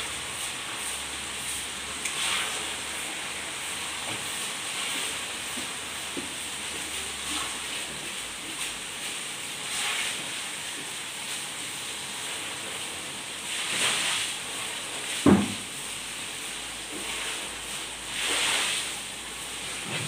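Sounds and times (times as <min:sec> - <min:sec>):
food sizzling in hot oil: 0:00.0 - 0:20.0
sharp thump: 0:15.3 - 0:15.6.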